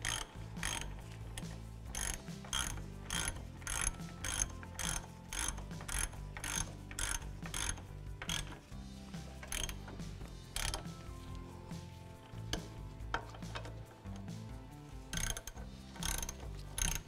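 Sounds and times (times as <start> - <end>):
hand ratchet clicking: 0.0 - 17.0.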